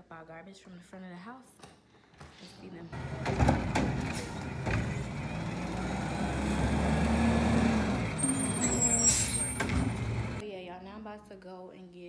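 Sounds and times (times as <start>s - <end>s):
garbage truck engine revving: 3.0s - 10.4s
hydraulics lifting trash cart: 3.0s - 10.4s.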